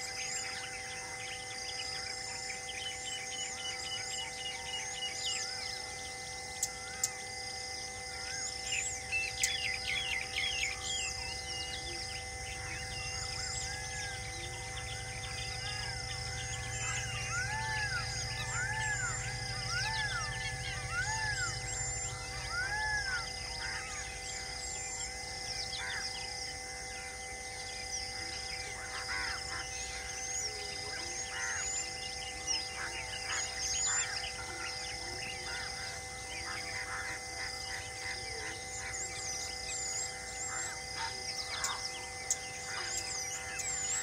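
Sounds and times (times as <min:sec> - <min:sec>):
pulsing high drone: 0:00.0 - 0:44.0
steady high hum: 0:00.0 - 0:44.0
bird chirps and calls: 0:08.2 - 0:26.3, 0:28.2 - 0:44.0.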